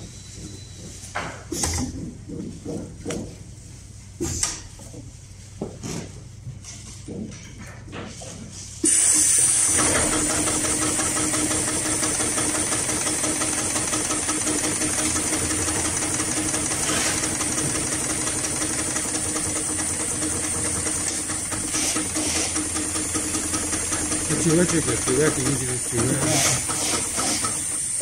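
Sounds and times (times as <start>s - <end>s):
sewing machine clattering: 9.0s - 28.0s.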